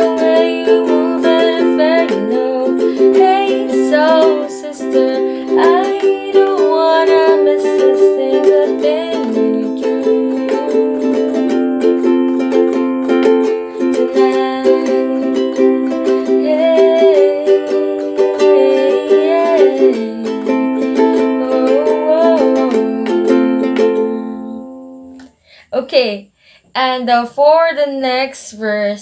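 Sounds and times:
woman singing wordless vocal: 0.0s - 11.8s, 13.8s - 24.7s
ukulele strumming chords: 0.0s - 25.2s.

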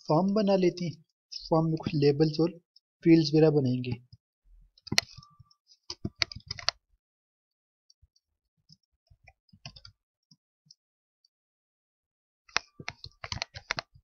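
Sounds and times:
computer keyboard typing: 5.9s - 6.8s.

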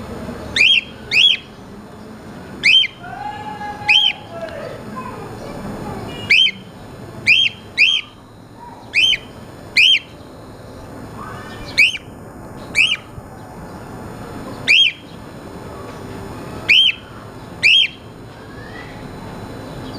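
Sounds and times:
cockatiel chirping: 0.6s - 1.5s, 2.6s - 3.0s, 6.2s - 6.6s, 7.2s - 8.2s, 8.8s - 10.2s, 11.2s - 12.1s, 12.7s - 13.1s, 14.6s - 15.0s, 16.7s - 18.0s.

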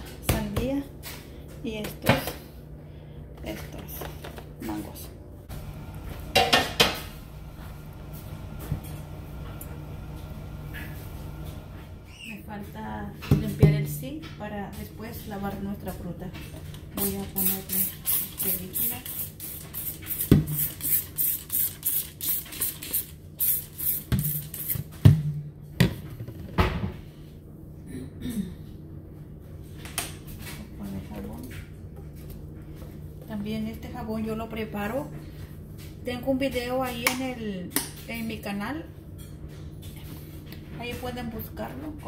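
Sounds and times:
room background hum: 0.0s - 42.0s
spray bottle squirting: 17.4s - 24.8s.

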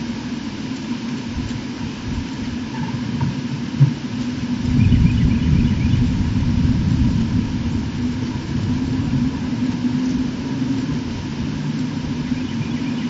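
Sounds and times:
faint constant hum: 0.0s - 13.0s
low rumble: 4.5s - 12.9s.

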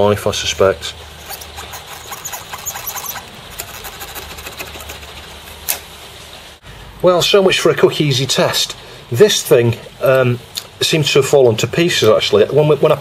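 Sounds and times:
scratchy rubbing with squeaks: 1.1s - 5.6s.

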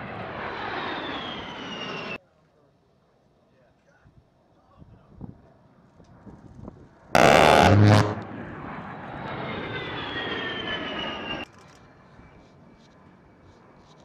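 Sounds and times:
jet engines whining past: 0.0s - 2.2s, 7.2s - 11.5s
loud burst: 7.2s - 8.7s.

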